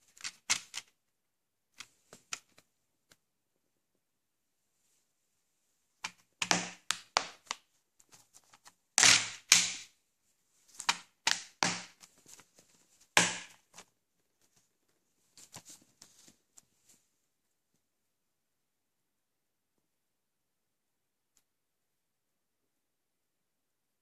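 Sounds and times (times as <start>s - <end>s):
plastic case clicking and knocking: 6.1s - 7.6s.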